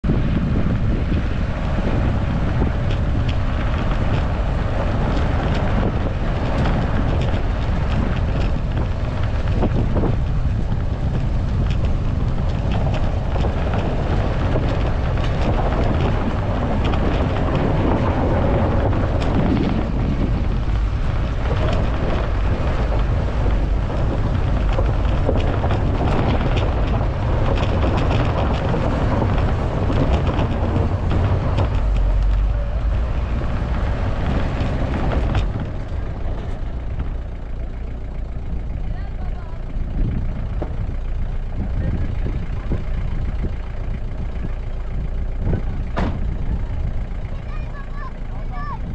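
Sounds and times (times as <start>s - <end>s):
car rumbling over gravel track: 0.0s - 48.9s
stones knocking under tyres: 0.8s - 38.9s.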